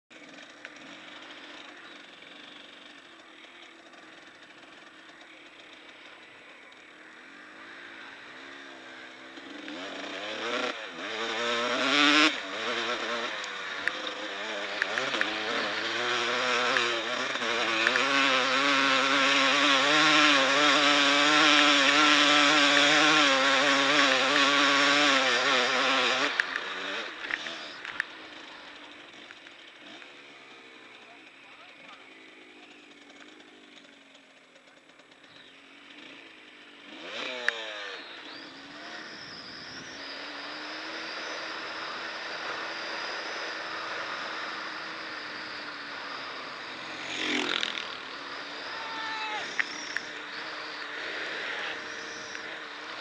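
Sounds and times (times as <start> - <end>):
motorcycle engine revving: 0.1 - 53.0.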